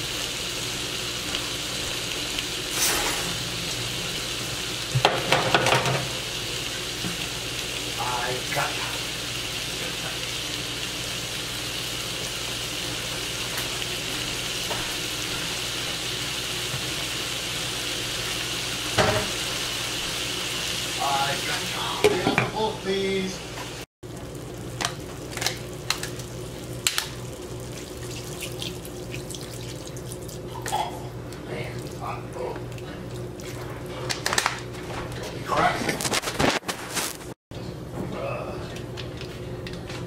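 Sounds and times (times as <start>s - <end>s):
meat sizzling in a pan: 0.0s - 30.6s
sharp pops and crackles: 26.8s - 27.2s.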